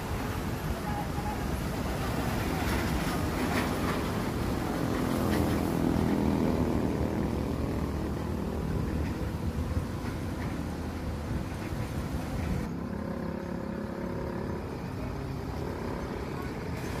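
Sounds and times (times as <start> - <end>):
tyres hissing on wet road: 0.0 - 12.7
truck engine passing: 1.4 - 17.0.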